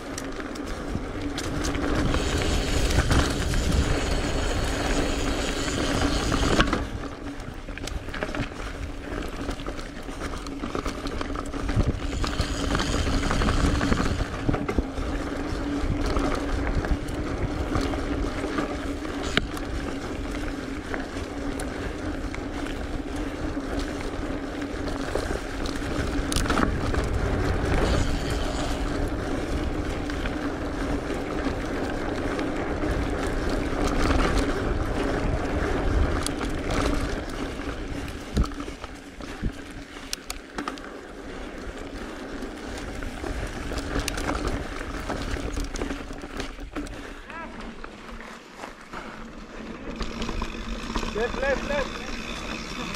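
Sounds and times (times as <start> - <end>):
bike knocking and rattling: 0.0 - 52.9
tyres on dirt: 0.0 - 52.9
wind rushing over microphone: 0.8 - 7.2, 11.6 - 18.2.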